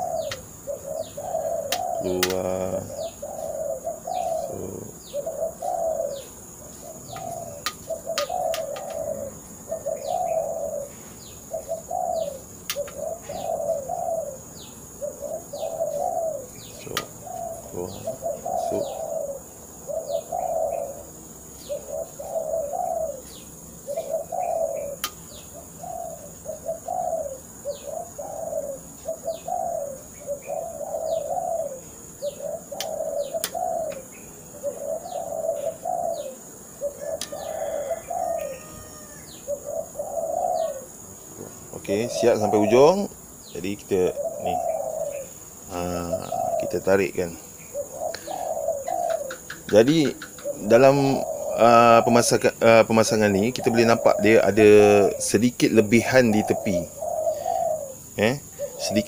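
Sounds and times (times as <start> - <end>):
dove cooing: 0.0 - 59.0.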